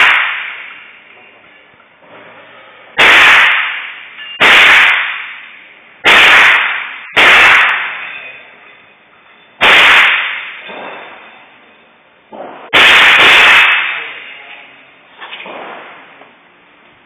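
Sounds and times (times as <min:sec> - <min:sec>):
rifle shots echoing: 0:03.0 - 0:05.4, 0:06.1 - 0:08.1, 0:09.6 - 0:11.1, 0:12.7 - 0:14.3.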